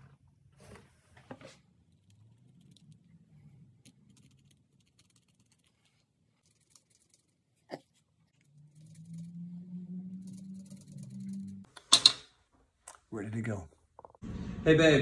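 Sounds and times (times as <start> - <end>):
pencil scratching around coin: 10.2 - 11.6.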